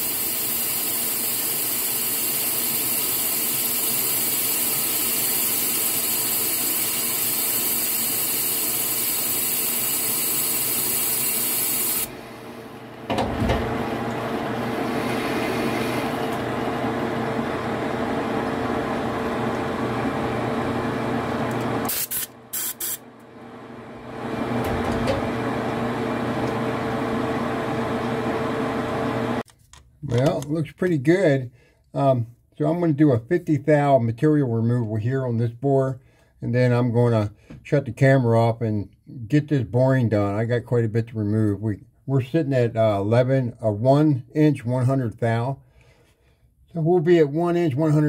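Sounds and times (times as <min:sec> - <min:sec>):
loud cutting hiss: 0:00.0 - 0:12.1, 0:21.9 - 0:23.0
lathe whine: 0:07.8 - 0:22.2, 0:23.4 - 0:29.4
metal lathe humming: 0:11.9 - 0:22.0.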